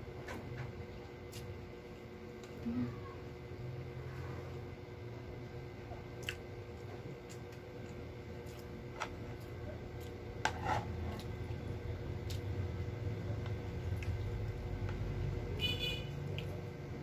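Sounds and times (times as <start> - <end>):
steady low hum: 0.0 - 17.0
plastic spoon scraping food tray: 10.4 - 11.1.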